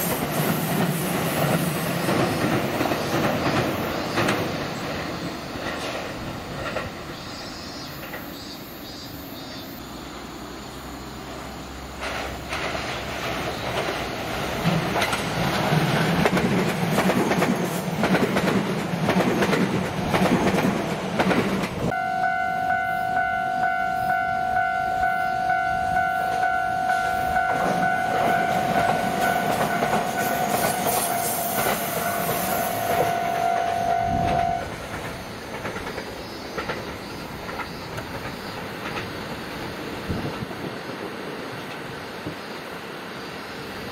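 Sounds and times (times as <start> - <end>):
electric train running on track: 0.0 - 43.9
level crossing warning bell: 21.9 - 34.7.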